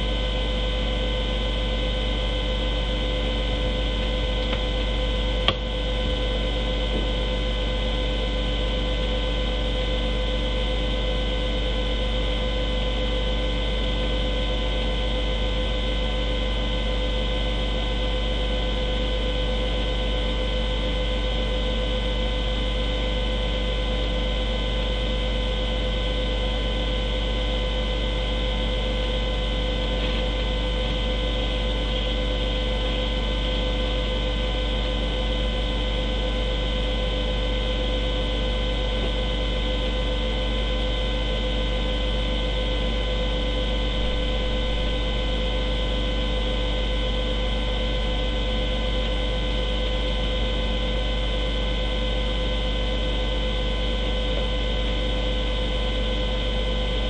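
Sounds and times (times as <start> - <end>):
electrical hum and hiss: 43.3 - 46.0.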